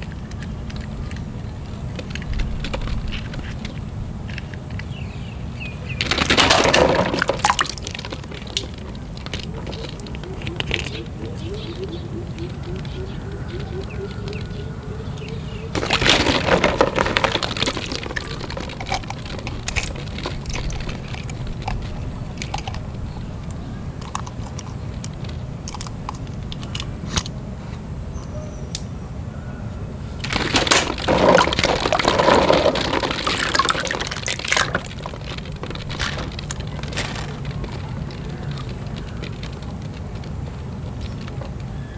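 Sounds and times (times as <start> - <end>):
plastic balls clicking together: 0.0 - 5.2, 5.8 - 27.3, 30.2 - 41.9
steady low hum: 0.0 - 41.9
water splashing and sloshing: 5.8 - 14.4, 15.6 - 26.8, 30.2 - 41.6.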